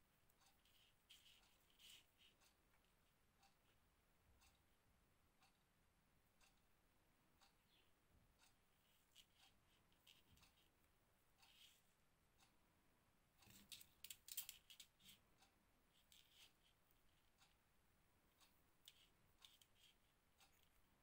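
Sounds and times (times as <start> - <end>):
crochet handwork clicks and rustles: 0.3 - 3.8, 8.8 - 10.8, 13.4 - 15.2, 15.9 - 17.6, 18.3 - 20.9.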